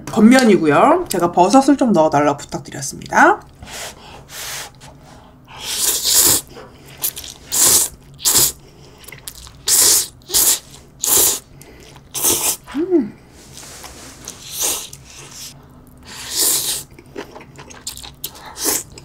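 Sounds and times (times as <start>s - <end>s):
person slurping noodles: 5.5s - 8.6s, 9.6s - 12.7s, 13.7s - 16.9s.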